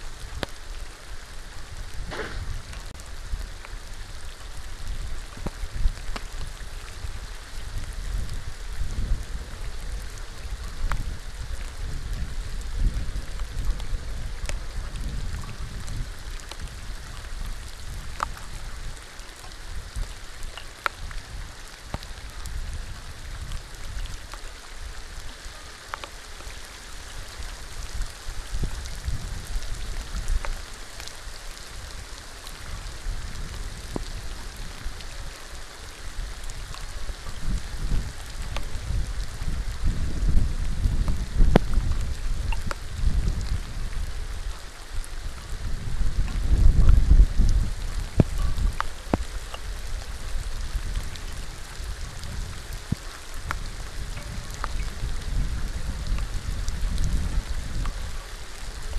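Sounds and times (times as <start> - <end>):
rain falling on water: 0.0 - 58.9
low rumble: 2.0 - 3.0.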